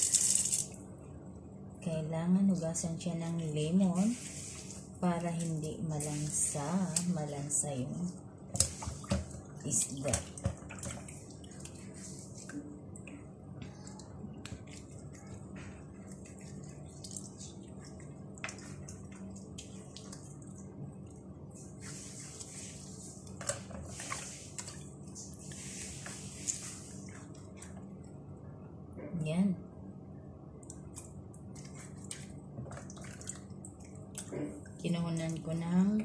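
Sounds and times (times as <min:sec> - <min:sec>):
water splashing in a plastic basin: 0:08.5 - 0:20.9, 0:31.6 - 0:35.8.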